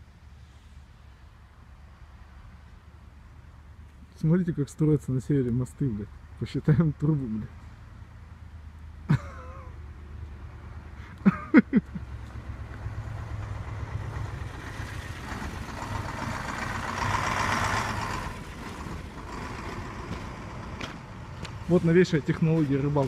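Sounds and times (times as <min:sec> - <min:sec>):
heavy vehicle passing: 0:09.7 - 0:23.0.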